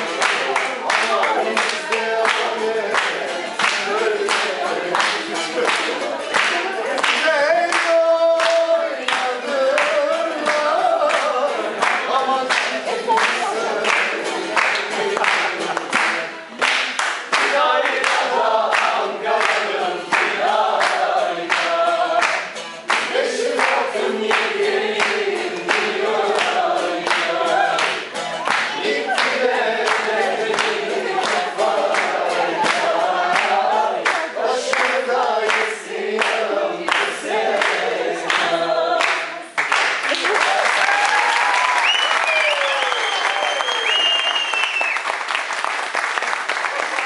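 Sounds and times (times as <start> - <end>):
group singing: 0.0 - 39.8
rhythmic hand clapping: 0.0 - 47.0.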